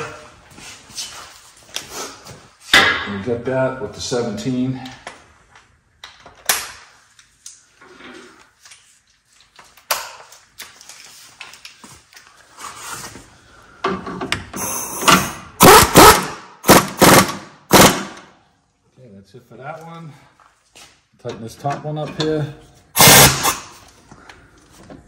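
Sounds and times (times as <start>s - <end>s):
impact wrench bursts: 14.6s - 18.3s, 23.0s - 23.8s.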